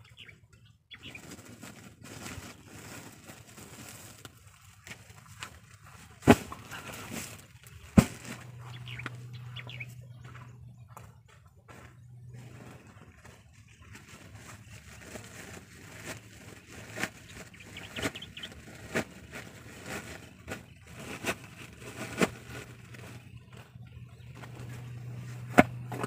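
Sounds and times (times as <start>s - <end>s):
plastic sacks rustling: 1.1s - 9.4s, 12.4s - 23.8s.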